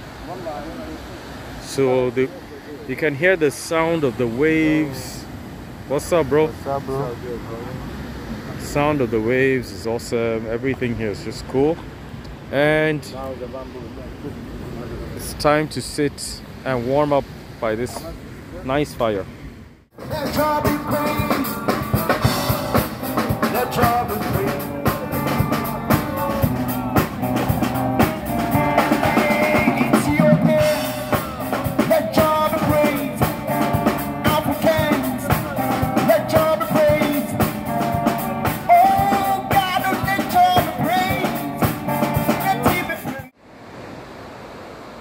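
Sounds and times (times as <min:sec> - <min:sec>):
man singing into microphone: 0:20.0 - 0:27.0, 0:28.6 - 0:33.6, 0:34.2 - 0:37.6, 0:38.6 - 0:41.6, 0:42.2 - 0:43.3
electric guitar: 0:20.0 - 0:43.2
drum kit: 0:20.0 - 0:43.3.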